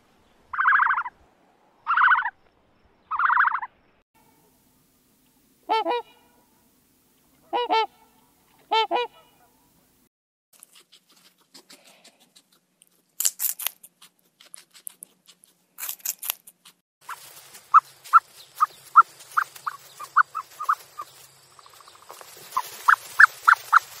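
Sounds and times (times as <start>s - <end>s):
outdoor hiss: 0.0s - 3.1s
short pitched animal calls: 0.5s - 1.1s, 1.9s - 2.4s
guinea pig chewing hay: 10.6s - 24.0s.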